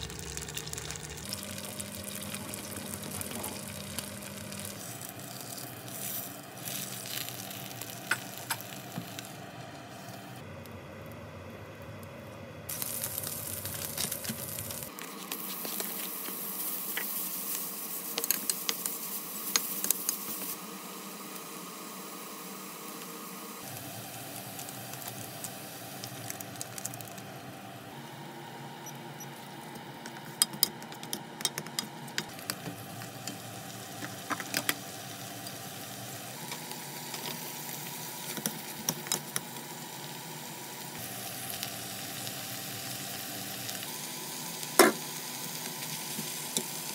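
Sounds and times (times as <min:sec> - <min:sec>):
meat sizzling in oil: 0:00.0 - 0:10.1, 0:12.7 - 0:21.2, 0:23.6 - 0:27.3, 0:32.2 - 0:46.9.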